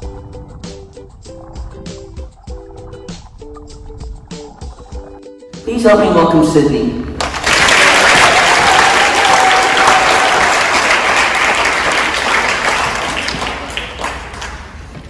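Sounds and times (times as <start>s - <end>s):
large audience applauding: 7.2s - 15.0s.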